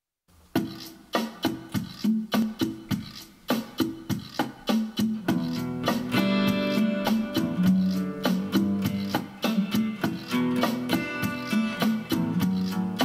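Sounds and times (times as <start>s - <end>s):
clicking percussion beat: 0.6s - 13.0s
acoustic guitar playing chords: 5.0s - 13.0s.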